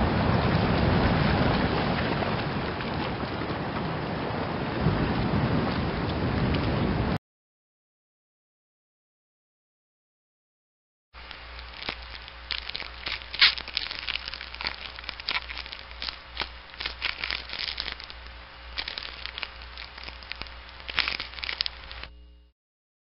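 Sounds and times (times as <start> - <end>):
sharp clicks and snaps: 11.2 - 22.1
crackling and rustling: 11.2 - 22.2
low hum: 11.2 - 22.5.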